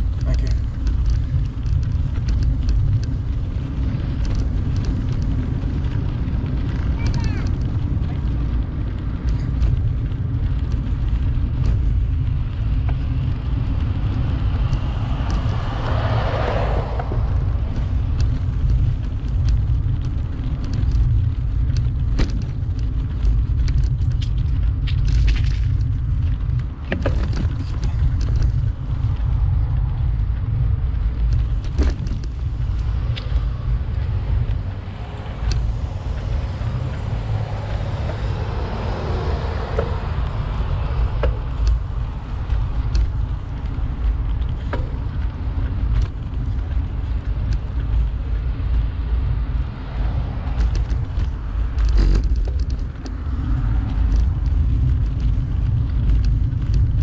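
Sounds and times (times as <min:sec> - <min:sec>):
light rattles and clicks: 0:00.0 - 0:57.0
wind buffeting microphone: 0:00.0 - 0:57.0.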